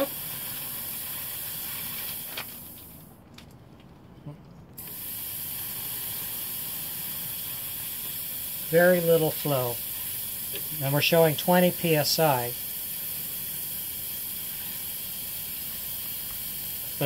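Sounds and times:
compressed air hissing: 0.0s - 3.0s, 4.8s - 17.0s.

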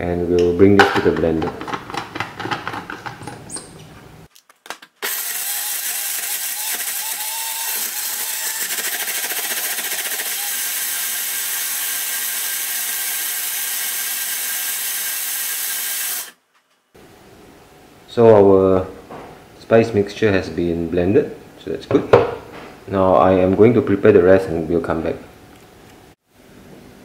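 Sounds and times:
plastic cup clattering: 0.8s - 3.8s
blender grinding: 5.0s - 16.4s.

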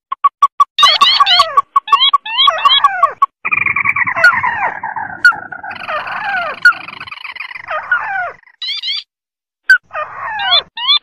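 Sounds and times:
bird notes sliding up and down: 0.1s - 9.1s
loud bird chattering calls: 0.8s - 9.1s.

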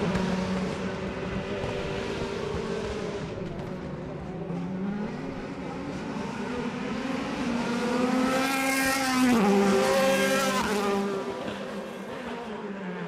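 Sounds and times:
race car engine at full throttle: 0.0s - 13.0s.

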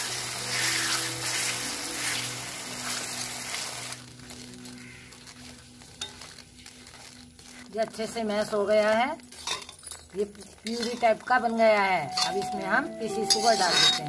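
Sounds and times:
fruit sizzling in hot fat: 0.0s - 14.0s
ladle scraping pan: 13.2s - 14.0s.

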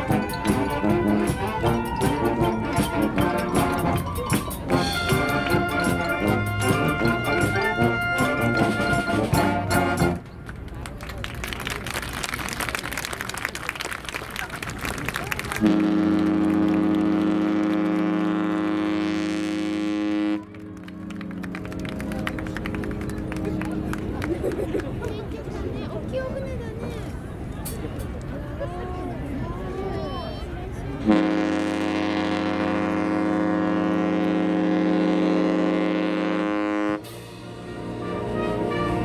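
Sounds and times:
ship horn blast: 0.0s - 10.3s, 15.6s - 24.1s, 31.0s - 39.0s.

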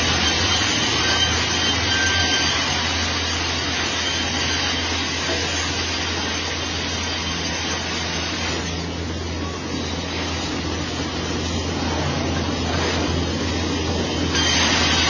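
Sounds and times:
low motor hum: 8.7s - 14.9s.

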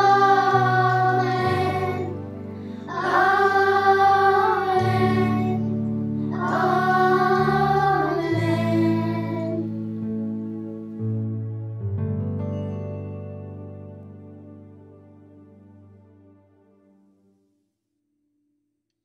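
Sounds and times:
children's choir singing: 0.0s - 9.8s
held accompaniment chords: 0.0s - 17.2s.

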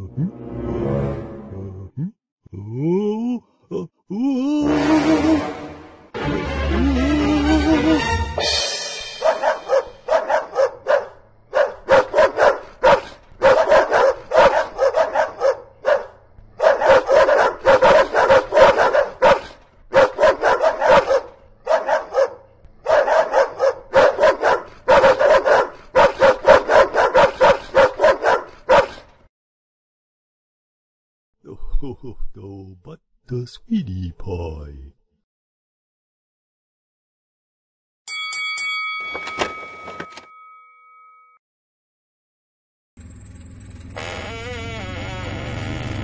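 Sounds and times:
dog barking: 9.2s - 29.0s.

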